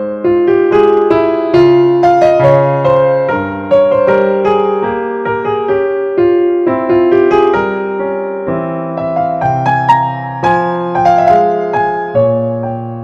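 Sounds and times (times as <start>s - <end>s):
gentle keyboard melody: 0.0s - 13.0s.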